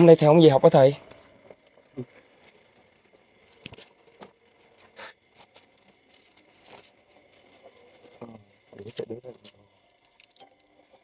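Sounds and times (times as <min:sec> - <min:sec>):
soft rustles: 0:01.1 - 0:08.1.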